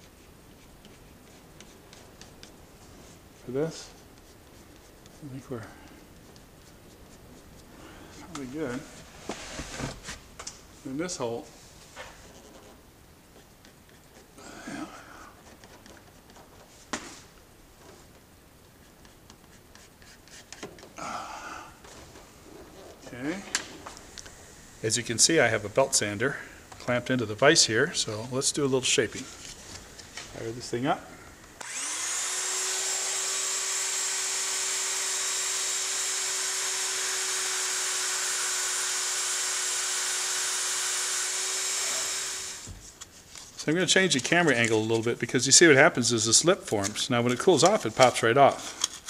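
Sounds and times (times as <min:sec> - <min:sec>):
pencil scratching on plastic: 0:00.0 - 0:08.3, 0:12.2 - 0:14.4, 0:15.3 - 0:16.8, 0:18.7 - 0:20.8
belt sander humming and whining: 0:31.6 - 0:42.7.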